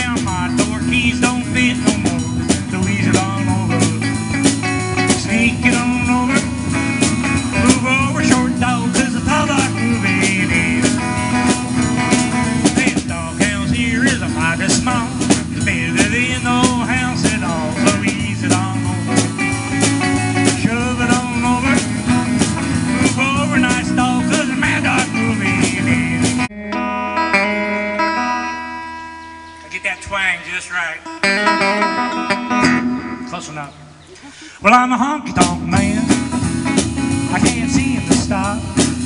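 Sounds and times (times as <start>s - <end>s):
drum kit: 0.0s - 26.5s, 35.3s - 39.0s
electric guitar soloing: 0.0s - 39.0s.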